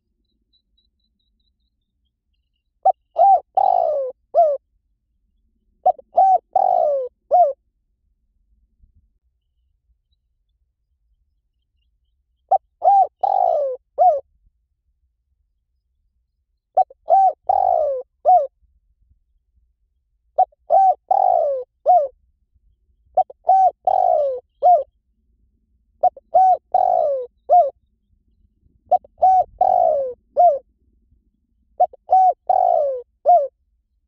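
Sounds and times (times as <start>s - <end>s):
dove cooing: 2.8s - 4.6s, 5.8s - 7.6s, 12.5s - 14.2s, 16.8s - 18.5s, 20.4s - 22.1s, 23.2s - 24.9s, 26.0s - 27.8s, 28.9s - 30.7s, 31.8s - 33.5s.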